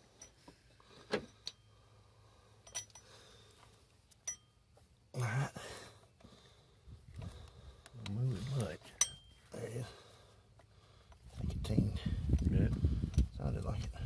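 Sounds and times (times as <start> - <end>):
light metallic clicks and taps: 7.2 - 9.4.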